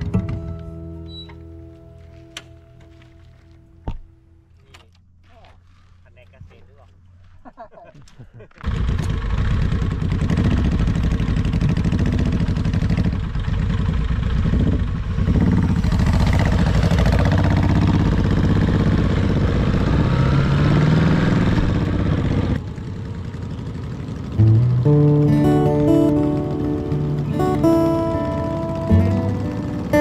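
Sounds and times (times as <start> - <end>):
motorcycle engine running: 8.6 - 30.0.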